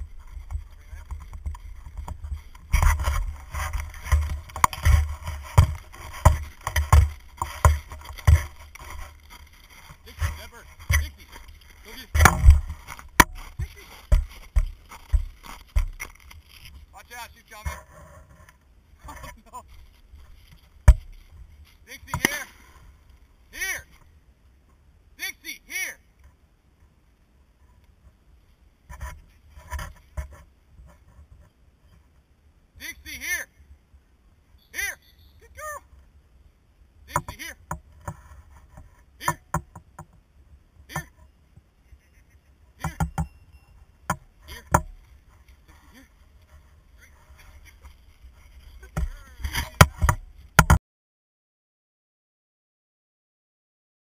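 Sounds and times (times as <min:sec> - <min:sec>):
thumping and scraping in snow: 0:00.0 - 0:23.0, 0:28.9 - 0:31.5, 0:44.1 - 0:50.8
rustling and scuffing: 0:00.0 - 0:24.1, 0:44.4 - 0:50.6
sharp thump: 0:12.2 - 0:14.3.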